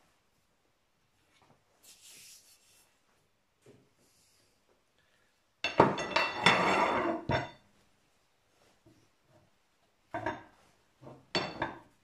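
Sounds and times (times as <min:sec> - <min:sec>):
metal pipe scraping and clanking: 0:06.0 - 0:07.6.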